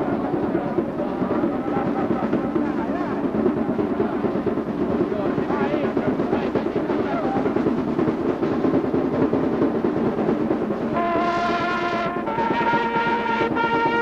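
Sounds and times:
dense crowd chatter: 0.0 - 14.0
brass band holding a chord: 10.9 - 14.0.

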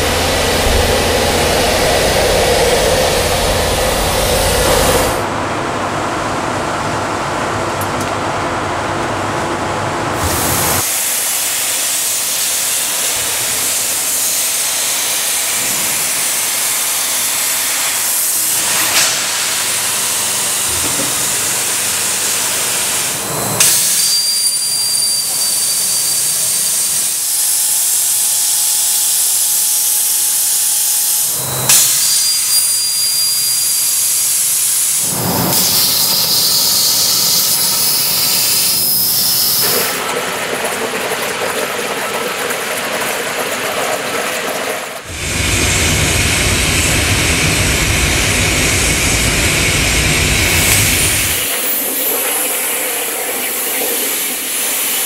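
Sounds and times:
cutting torch hissing: 0.0 - 5.2, 22.7 - 39.9, 45.1 - 55.0
machine hum with steady tones: 0.0 - 40.2, 45.1 - 55.0
thin high whistle: 23.6 - 26.9, 31.7 - 34.5, 35.3 - 39.9.

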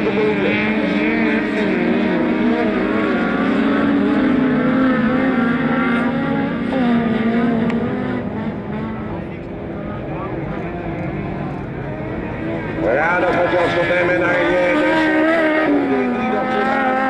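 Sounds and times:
race car engines revving: 0.0 - 17.0.

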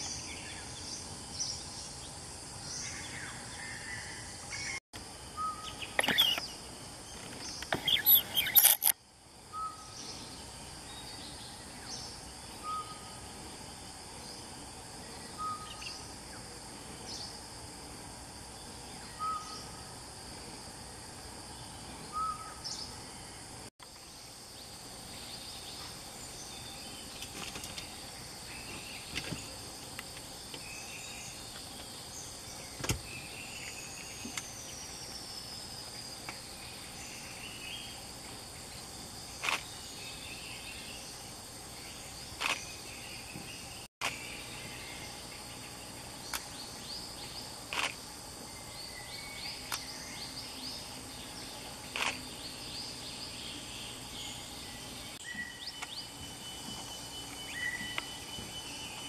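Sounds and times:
insect drone: 0.0 - 59.0
small birds chirping: 5.4 - 8.9, 24.6 - 59.0.

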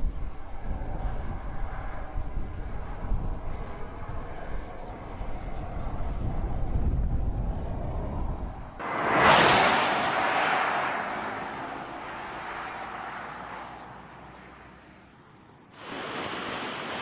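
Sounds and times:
car passing by whoosh: 8.8 - 14.9.

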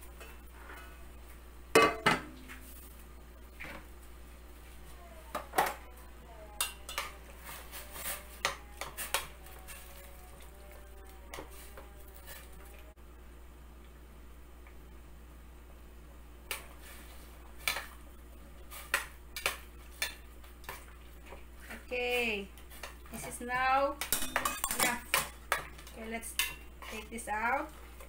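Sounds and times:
utensils clinking against pot: 24.0 - 27.1.

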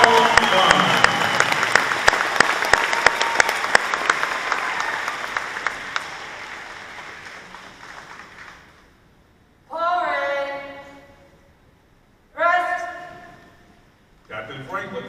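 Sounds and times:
crowd applauding: 0.0 - 8.9.

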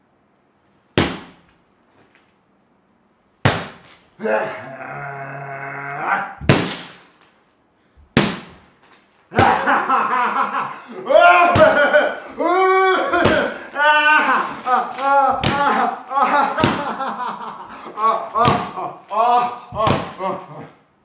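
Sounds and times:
man's drawn-out vocal cry: 4.2 - 6.5, 9.3 - 16.9, 17.8 - 20.8.

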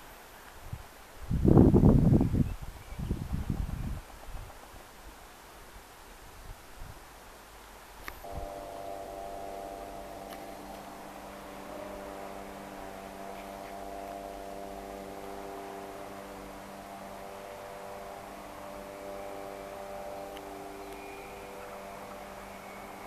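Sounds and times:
faint high whine: 0.0 - 23.0
faint hiss: 0.0 - 23.0
steady hum of even tones: 6.8 - 23.0.

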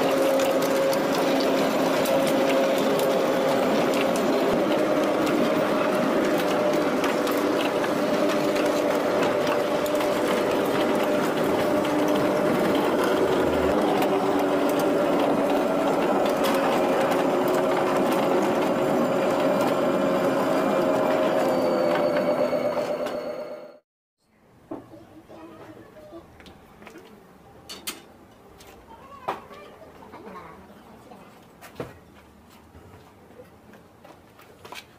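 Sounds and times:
mechanical drive hum: 0.0 - 23.6
wheels clattering on rails: 0.0 - 23.7.

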